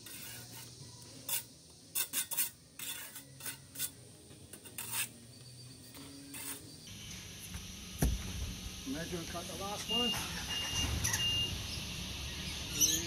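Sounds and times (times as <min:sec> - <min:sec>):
trowel scraping wet mortar: 0:00.0 - 0:05.2, 0:06.3 - 0:06.6.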